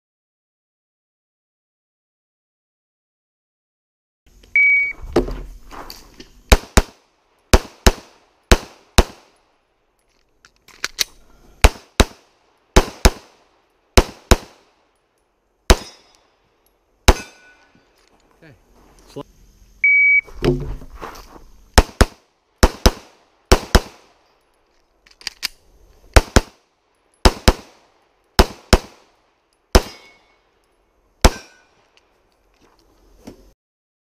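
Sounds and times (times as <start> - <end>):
shot timer beep: 4.6 - 5.0, 19.8 - 20.3
handgun firing: 6.5 - 9.4, 11.6 - 13.4, 14.0 - 14.7, 15.7 - 16.2, 17.1 - 17.7, 21.8 - 24.1, 26.2 - 26.6, 27.2 - 27.8, 28.4 - 29.1, 29.7 - 30.4, 31.2 - 31.7.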